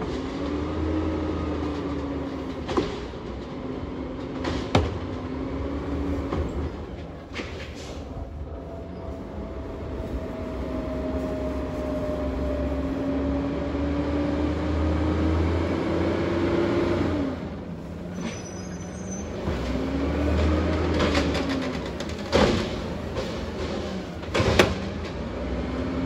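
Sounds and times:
garbage truck engine pulling: 0.0s - 26.0s
short high squeal: 18.1s - 19.4s.

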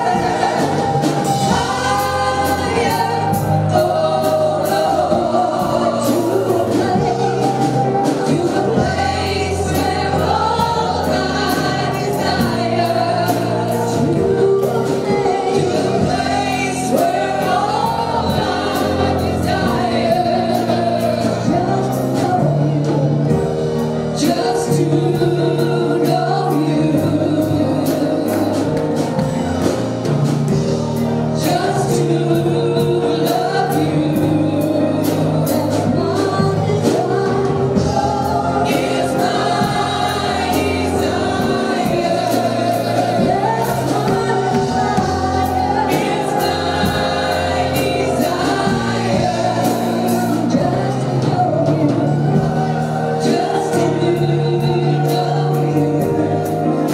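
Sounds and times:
drums: 0.0s - 56.9s
group singing gospel song: 0.0s - 56.9s
keyboard: 0.0s - 56.9s.

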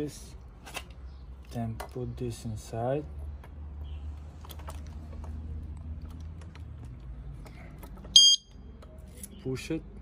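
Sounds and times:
high electronic beep: 8.2s - 8.5s.

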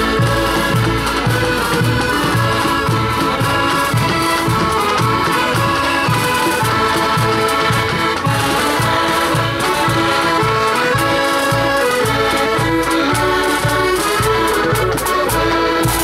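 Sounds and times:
bass drum beating: 0.0s - 10.2s
accordion band playing: 0.0s - 16.0s.

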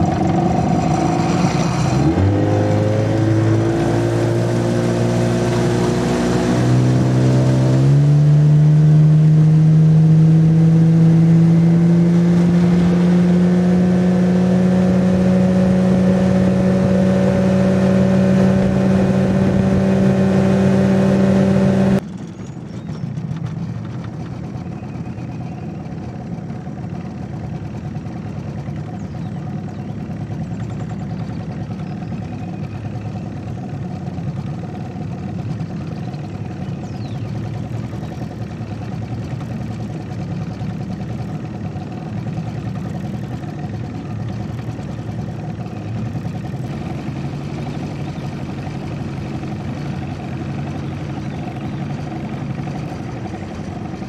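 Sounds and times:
outboard motor running: 0.0s - 54.0s.

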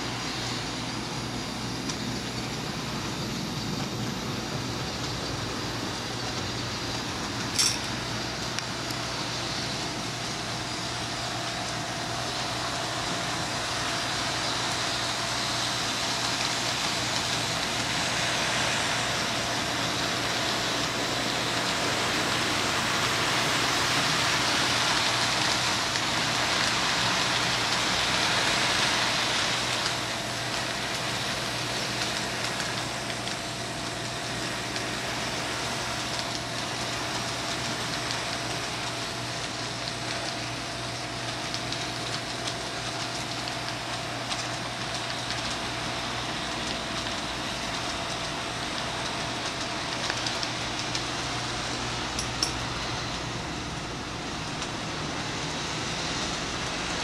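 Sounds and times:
constant hum: 0.0s - 57.0s
model train wheels rushing on track: 0.0s - 57.0s.

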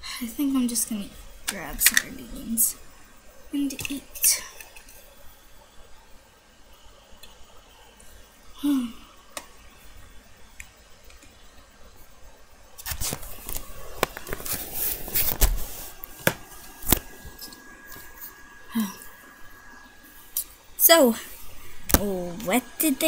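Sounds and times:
plastic toys handled on carpet: 12.8s - 17.5s.

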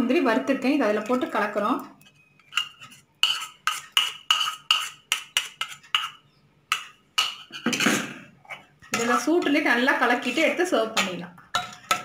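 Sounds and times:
steel spoon clinking in metal pot: 2.4s - 7.6s, 11.0s - 12.0s.

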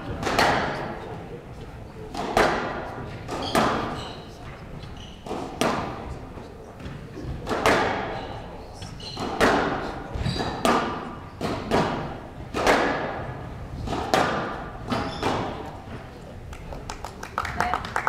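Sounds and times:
squash ball hits echoing: 0.0s - 1.0s, 2.1s - 4.0s, 5.2s - 6.1s, 6.8s - 8.4s, 9.1s - 16.0s.

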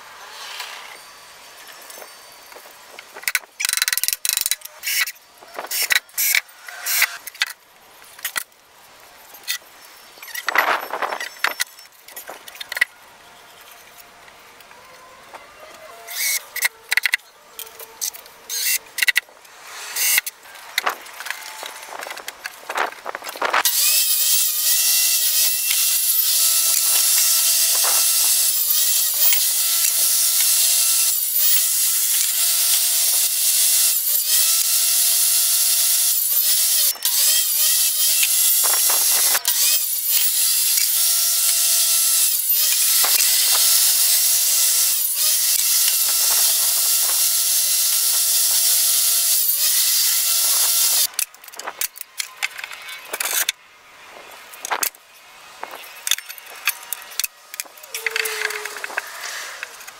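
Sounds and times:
table saw whining: 14.6s - 51.2s
cordless drill driving screws: 23.4s - 52.0s.

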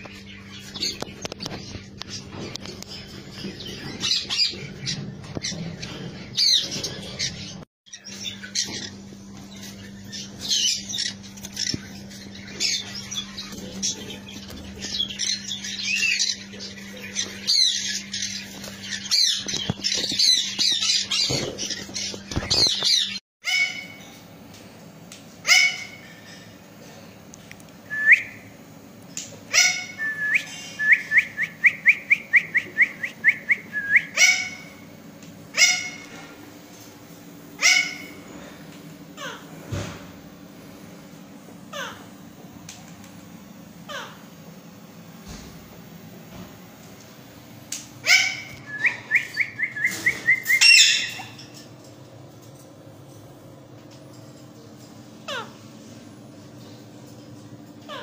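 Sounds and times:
parakeets squawking: 0.1s - 24.1s, 25.4s - 26.5s, 29.5s - 36.3s, 37.5s - 39.6s, 41.6s - 42.2s, 43.8s - 44.3s, 48.0s - 51.6s, 55.2s - 55.6s.

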